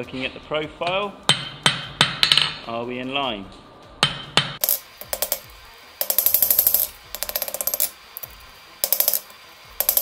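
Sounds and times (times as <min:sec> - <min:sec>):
hammer striking steel on anvil: 0:01.3 - 0:02.6.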